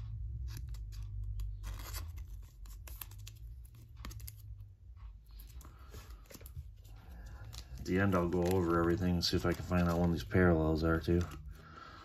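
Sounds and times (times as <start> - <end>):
plastic card sleeve crinkling: 0.4 - 4.7, 5.3 - 11.8.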